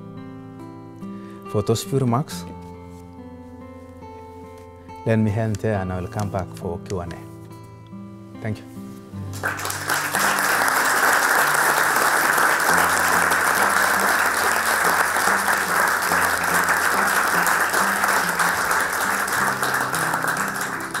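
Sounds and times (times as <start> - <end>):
slow guitar background music: 0.0 - 21.0
audience applauding: 9.4 - 21.0.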